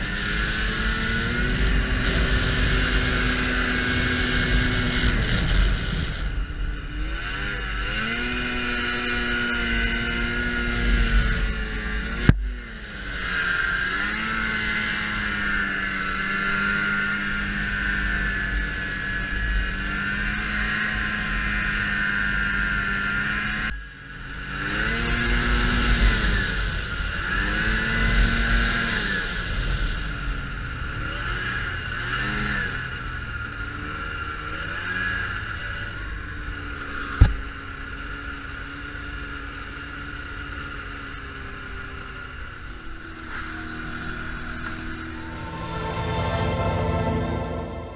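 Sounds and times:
snowmobile engine revving: 0.0 - 23.7, 24.3 - 29.4.

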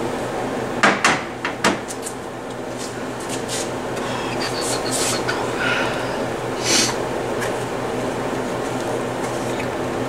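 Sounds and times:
low electrical hum: 0.0 - 10.0
knocks and clatters on a workbench: 0.8 - 1.8.

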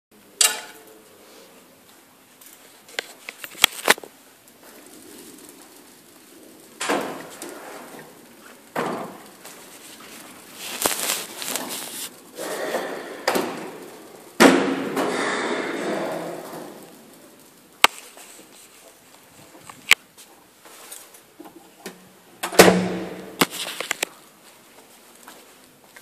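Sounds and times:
rustling: 0.9 - 22.0, 22.9 - 26.0.

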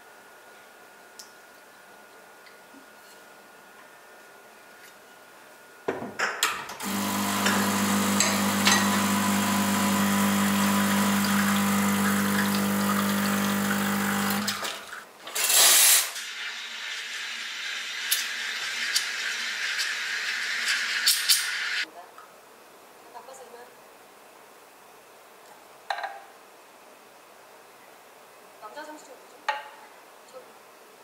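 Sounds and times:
pump humming: 6.8 - 15.0.

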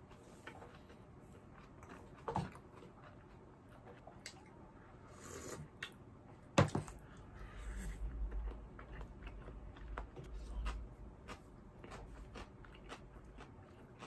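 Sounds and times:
chewing and mouth clicks: 0.0 - 4.6, 7.4 - 14.0.

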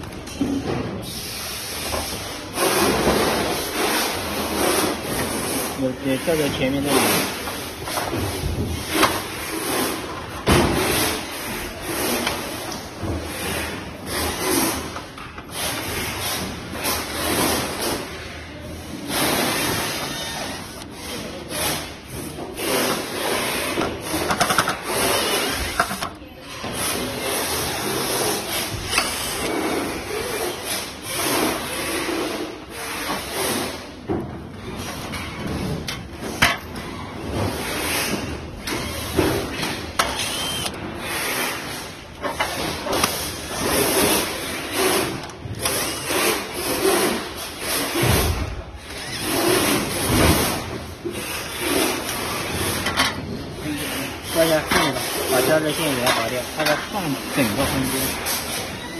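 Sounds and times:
cordless drill driving screws: 40.0 - 40.8.

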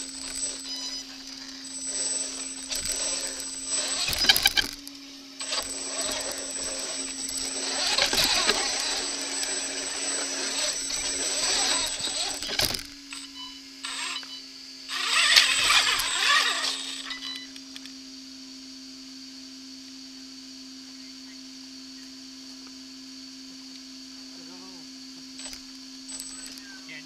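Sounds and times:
steady hum: 0.0 - 17.3
electric drivetrain whirring: 0.0 - 18.0, 24.4 - 27.0
tyres scraping on stone: 5.4 - 12.8.

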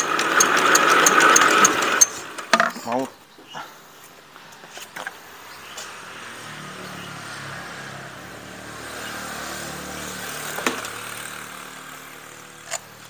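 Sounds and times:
vehicle engine passing: 5.1 - 13.0.

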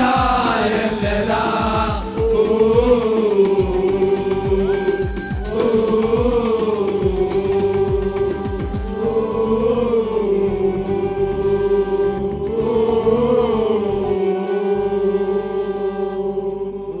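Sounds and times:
percussion strokes: 0.0 - 10.3
crowd singing a held note: 0.0 - 17.0.

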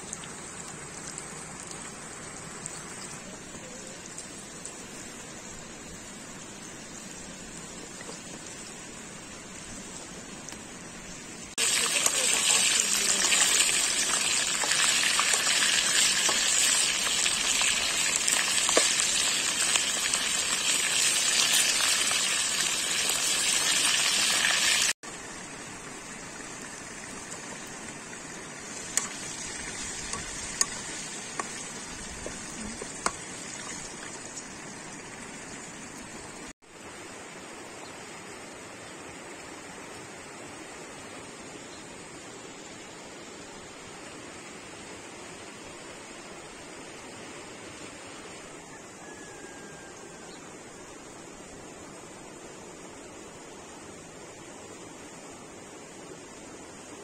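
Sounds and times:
chicken frying in hot oil: 0.0 - 36.5, 49.0 - 50.5.

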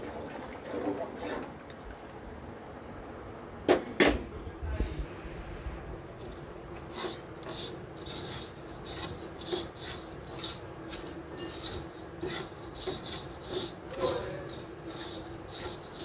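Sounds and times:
spatula scraping dry pieces in pot: 6.2 - 16.0.

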